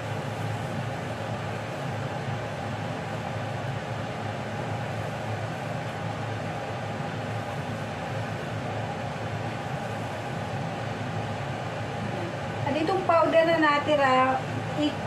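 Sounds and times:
machinery humming: 0.0 - 15.0.

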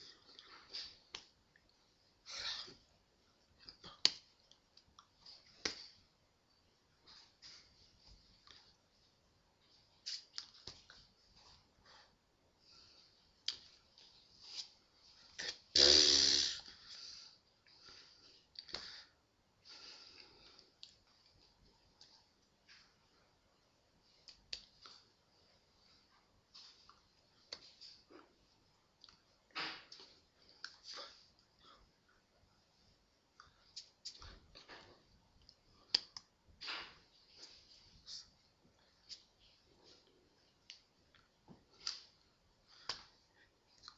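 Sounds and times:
hands clicking and slapping: 1.1 - 1.4, 3.6 - 5.9, 10.1 - 11.0, 24.2 - 24.9, 42.7 - 43.2
hands rustling against sweater: 13.7 - 15.4
mouth noise: 15.7 - 16.7.

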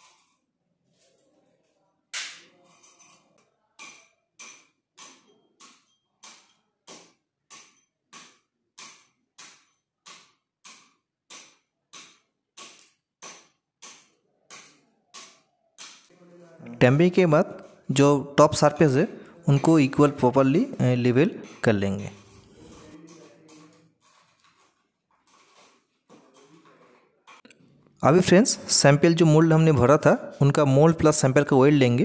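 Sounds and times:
steel rod tapping into crushed stone: 3.8 - 16.1.

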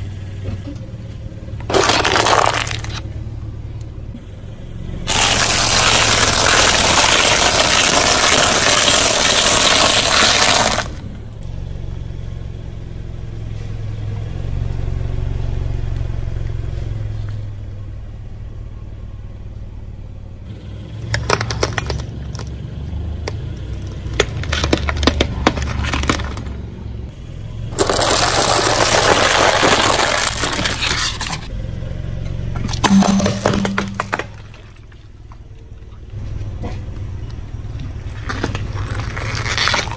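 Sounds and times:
low engine running: 0.0 - 8.8, 10.5 - 29.1
sharp cracks and snaps: 1.6 - 3.1, 23.2 - 26.6, 37.8 - 39.9
tyres crushing crunchy objects: 1.6 - 3.1, 5.1 - 11.0, 21.0 - 22.6, 23.2 - 26.6, 27.7 - 31.5, 32.6 - 35.0, 37.8 - 39.9.

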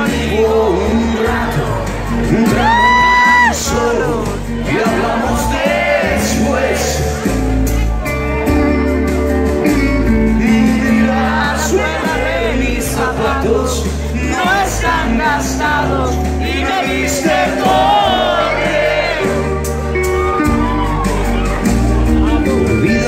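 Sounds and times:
lead vocal singing: 0.0 - 7.6, 10.1 - 19.7
live rock band playing: 0.0 - 23.0.

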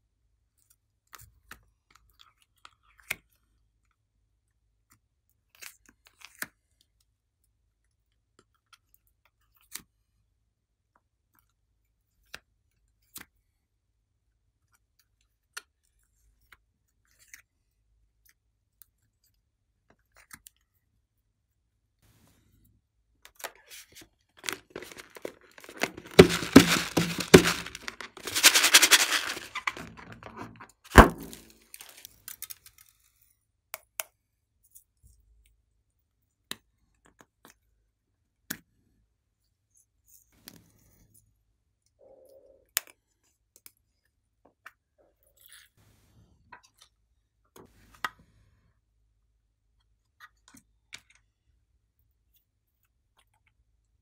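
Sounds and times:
balloon crackling: 24.4 - 32.0.

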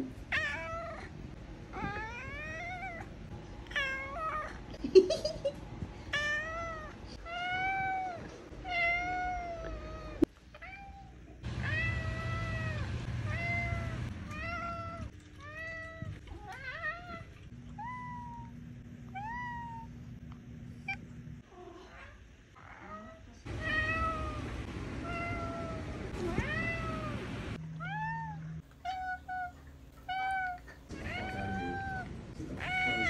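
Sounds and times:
faint steady hum: 0.0 - 33.0
cat meowing: 6.2 - 18.6, 22.7 - 27.2, 27.8 - 33.0.

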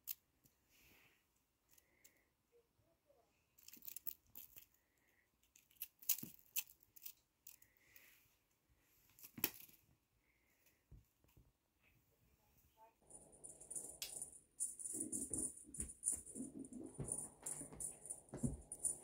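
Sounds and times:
kitten scuffling with toy on carpet: 14.6 - 19.0.

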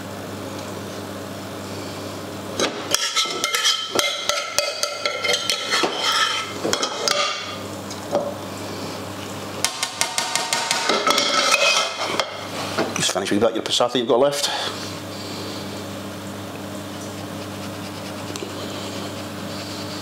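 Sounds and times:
steady low hum: 0.0 - 20.0
metal spoon scraping frying pan: 3.0 - 7.2, 10.8 - 12.5.

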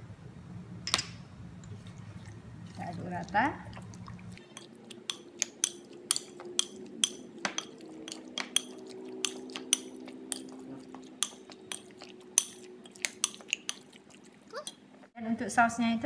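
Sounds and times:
faint steady hum: 0.0 - 16.0
spoon clinking against glass bowl: 4.4 - 14.0, 14.6 - 14.9.

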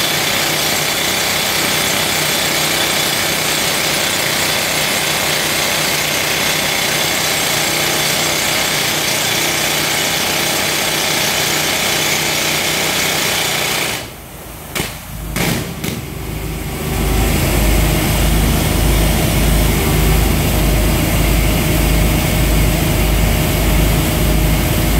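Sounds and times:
pneumatic rock drill boring: 0.0 - 16.2
machine drone with pulsing throb: 15.1 - 24.9.

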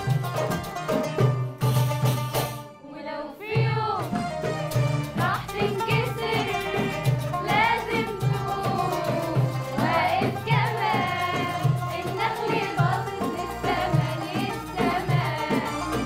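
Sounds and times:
instrumental accompaniment with beat: 0.0 - 2.8, 3.5 - 16.0
woman singing: 2.8 - 4.1, 5.2 - 16.0
girls' choir singing: 2.8 - 16.0.

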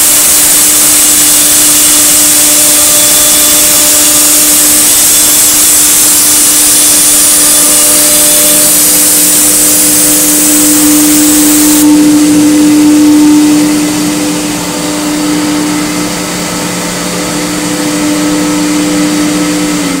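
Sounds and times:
rushing hiss: 0.0 - 14.7
router spindle whine: 0.0 - 20.0.

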